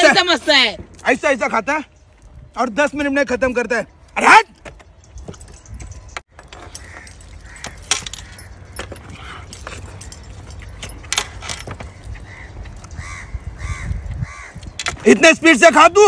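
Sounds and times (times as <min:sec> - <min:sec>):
metal jewellery jingling: 0:04.5 - 0:13.0.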